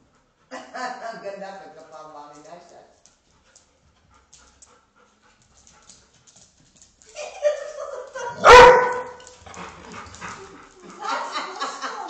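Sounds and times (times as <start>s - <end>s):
dog barking: 8.3s - 9.2s.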